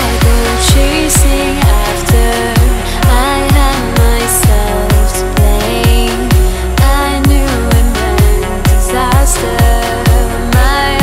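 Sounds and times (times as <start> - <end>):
kick drum thumping: 0.0 - 10.8
sustained synth lines: 0.0 - 11.0.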